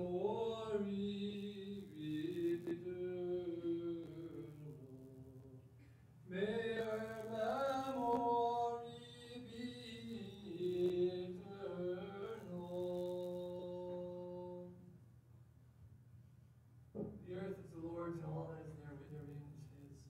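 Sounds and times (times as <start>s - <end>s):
solo voice chanting: 0.0s - 14.9s.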